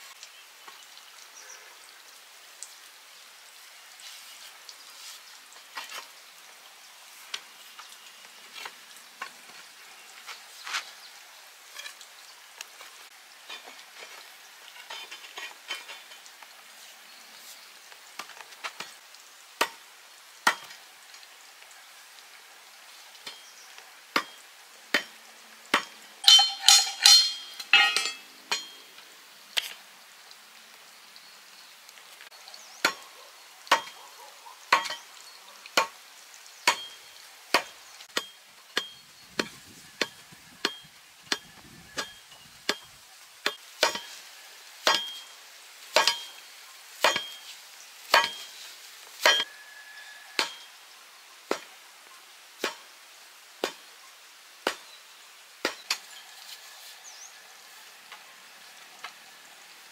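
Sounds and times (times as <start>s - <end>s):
faint steady hiss: 0.0s - 59.9s
metallic clinking: 25.8s - 28.8s.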